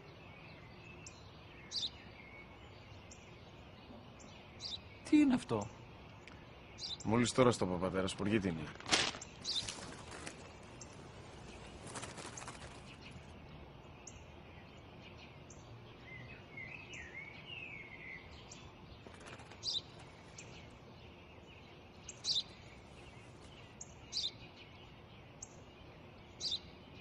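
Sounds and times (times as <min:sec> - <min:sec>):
sparrow chirping: 0:00.0 - 0:08.6, 0:09.2 - 0:27.0
faint outdoor hiss: 0:00.0 - 0:27.0
warbling bird phrase: 0:05.0 - 0:05.8.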